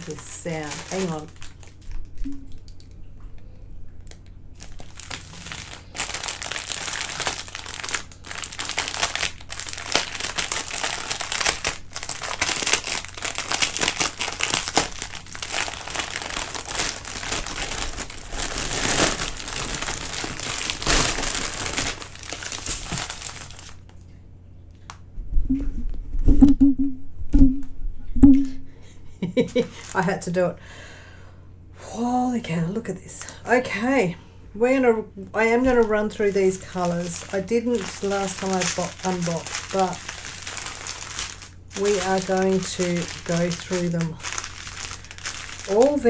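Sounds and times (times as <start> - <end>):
plastic wrapping crinkling: 0.0 - 3.0, 4.0 - 24.1, 29.6 - 30.3, 35.3 - 46.0.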